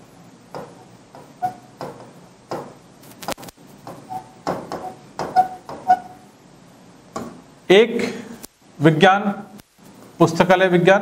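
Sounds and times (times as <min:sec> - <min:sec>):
marker squeak: 0:01.3 - 0:01.8, 0:03.9 - 0:06.3
marker writing on whiteboard: 0:03.8 - 0:06.2.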